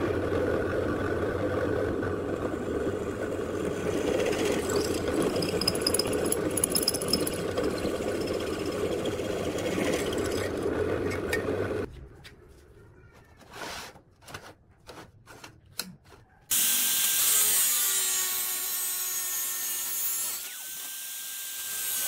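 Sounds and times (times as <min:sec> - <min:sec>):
drill bit grinding through steel: 0:04.0 - 0:10.6
drill bit squealing: 0:04.4 - 0:10.4.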